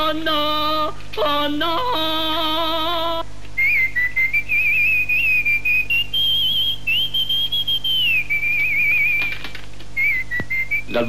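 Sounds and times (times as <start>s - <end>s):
person whistling a tune: 3.6s - 9.4s, 10.0s - 11.0s.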